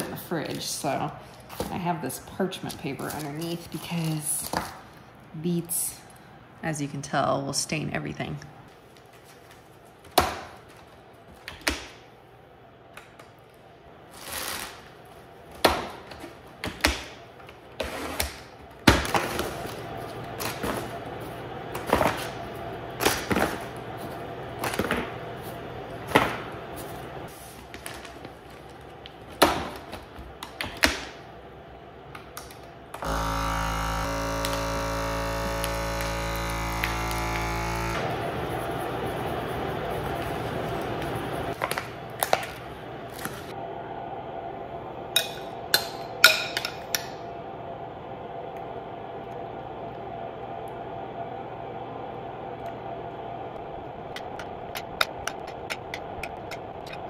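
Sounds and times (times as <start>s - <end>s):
vacuum pump humming: 32.9s - 44.0s.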